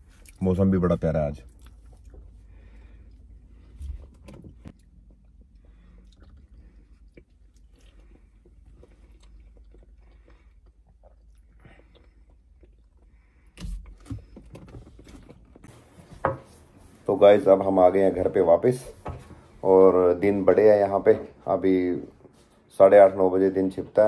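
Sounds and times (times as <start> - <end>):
chewing bananas: 1.4 - 15.9.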